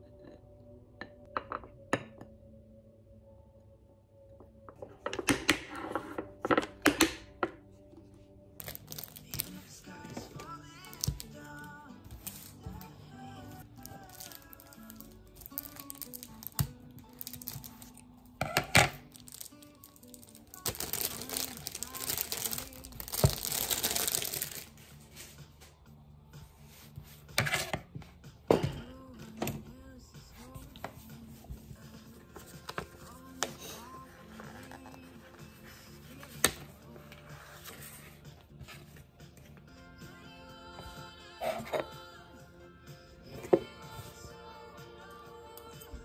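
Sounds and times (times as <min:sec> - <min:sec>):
soft background music: 0:00.0 - 0:46.0
plastic shrink-wrap crinkling: 0:08.6 - 0:09.6, 0:13.6 - 0:18.0, 0:19.0 - 0:24.8.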